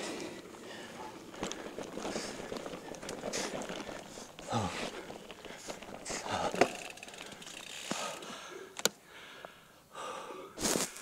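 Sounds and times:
person breathing hard: 0.0s - 2.6s, 3.3s - 11.0s
bicycle chain and gears rattling: 0.3s - 8.6s.

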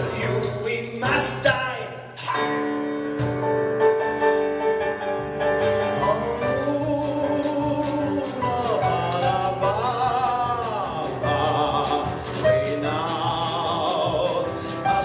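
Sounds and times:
plucked double bass: 0.0s - 1.6s, 2.3s - 15.0s
man singing into a microphone: 0.0s - 2.8s, 5.9s - 15.0s
piano: 0.0s - 15.0s.

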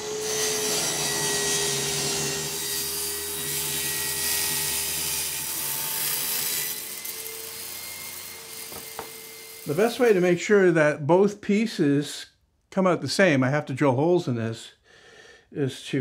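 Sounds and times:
table saw running hum: 0.0s - 10.4s
table saw cutting wood: 0.0s - 10.7s.

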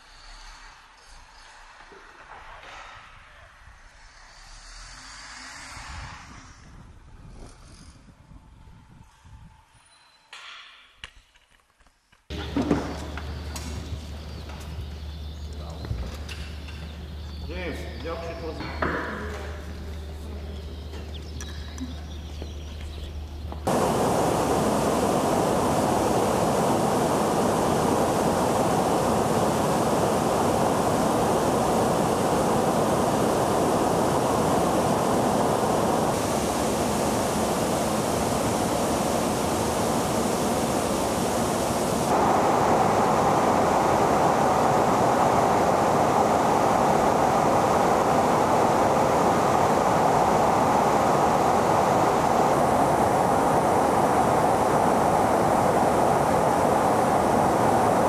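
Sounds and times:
aircraft cabin jet noise: 12.3s - 58.0s
low steady hum: 12.3s - 58.0s.

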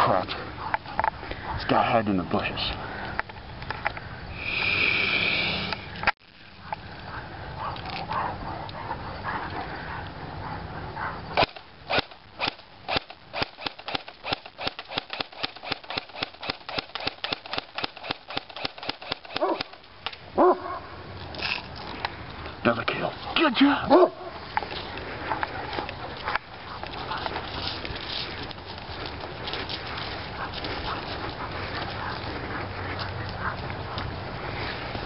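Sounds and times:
airsoft gun shots: 11.4s - 19.8s.

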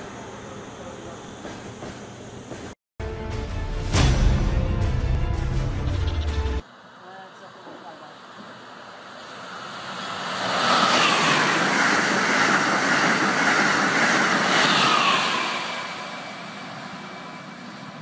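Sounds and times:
high-speed train passing: 6.6s - 18.0s.

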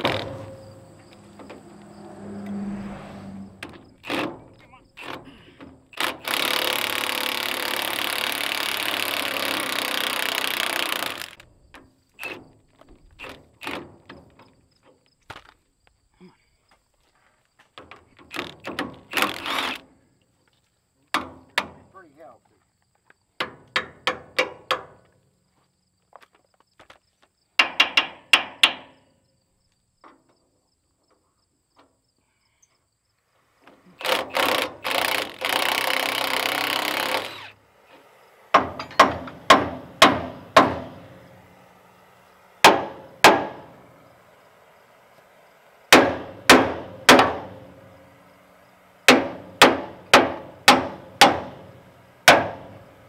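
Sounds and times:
impact wrench hammering: 27.6s - 28.9s, 34.0s - 37.6s, 38.4s - 41.6s, 42.5s - 43.9s, 45.9s - 48.1s, 49.0s - 53.0s
hammer striking steel: 38.5s - 41.2s, 42.6s - 43.8s, 45.9s - 47.7s, 49.1s - 52.8s.

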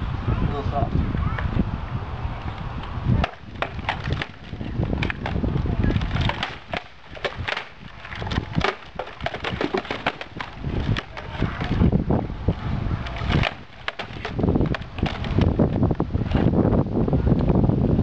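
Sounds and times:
wind rumble on microphone: 0.0s - 18.0s
sticks clacking: 6.1s - 11.4s, 13.1s - 15.5s.

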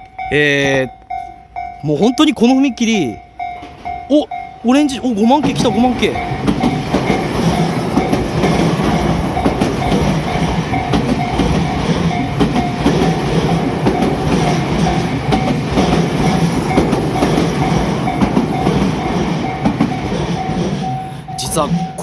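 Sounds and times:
crossing warning bell ringing: 0.0s - 22.0s
train wheels clacking over rail joints: 5.3s - 22.0s.

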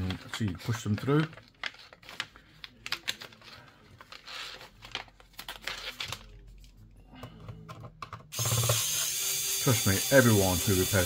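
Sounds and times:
paper crinkling: 0.0s - 6.9s
electric screwdriver whirring: 8.3s - 11.0s.

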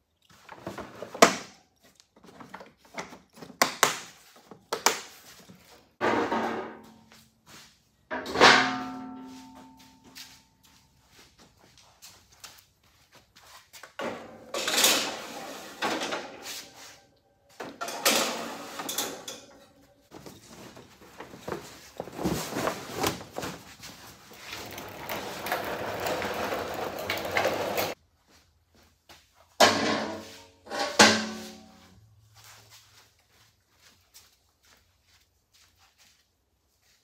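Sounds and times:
scraping and rustling: 20.1s - 28.0s
metal scraping and clunks: 29.6s - 31.8s.

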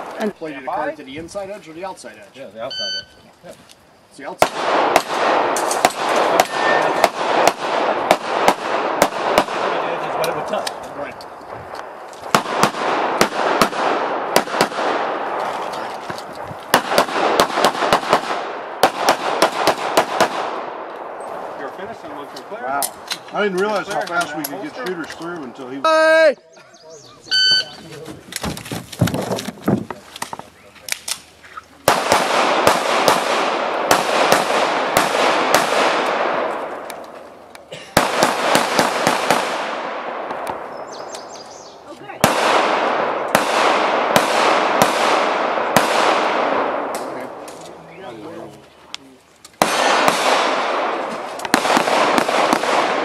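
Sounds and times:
pistol shots: 4.4s - 10.3s, 12.2s - 15.4s, 16.7s - 21.2s, 31.8s - 36.8s, 38.0s - 40.7s, 42.2s - 47.5s, 49.6s - 53.0s.

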